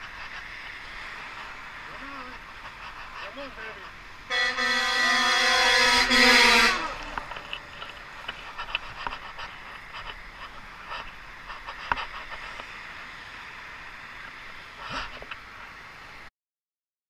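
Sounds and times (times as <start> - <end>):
vehicle passing: 0.0 - 8.8
road traffic hiss: 0.0 - 16.3.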